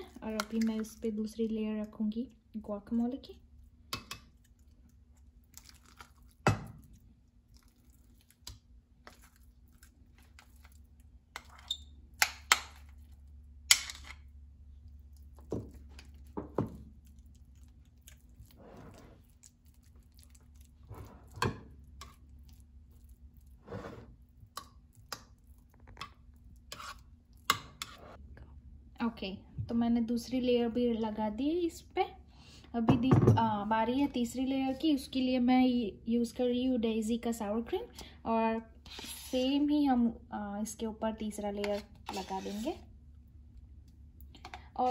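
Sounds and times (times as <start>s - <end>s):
wet squishing of guacamole: 3.5s - 28.0s.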